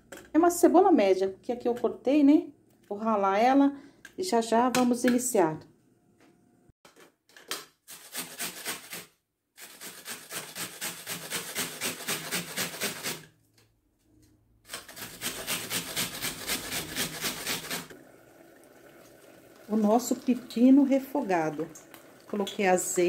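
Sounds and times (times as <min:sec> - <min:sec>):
onion grated on metal grater: 0:07.9 - 0:13.3, 0:14.7 - 0:17.9.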